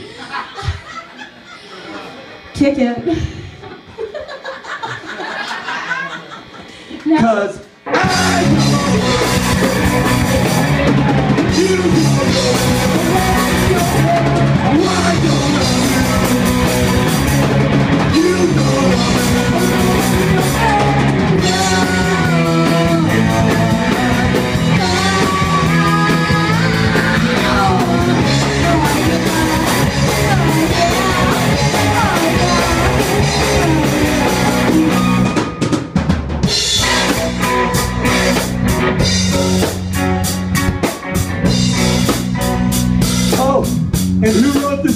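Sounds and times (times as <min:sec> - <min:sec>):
punk rock band playing: 0:07.7 - 0:44.9
person singing: 0:07.9 - 0:17.4, 0:18.0 - 0:35.5.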